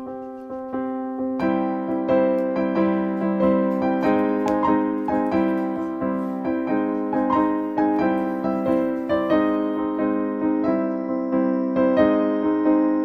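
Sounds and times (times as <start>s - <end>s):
electric piano tune: 0.0s - 13.0s.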